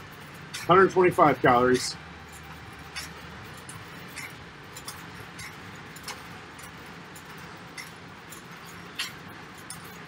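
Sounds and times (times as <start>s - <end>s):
light clinks: 0.0s - 10.0s.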